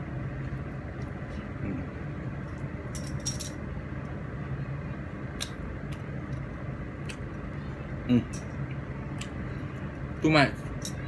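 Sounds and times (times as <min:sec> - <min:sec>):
steady low hum: 0:00.0 - 0:11.0
chewing clicks and smacks: 0:05.4 - 0:07.4, 0:09.1 - 0:09.4.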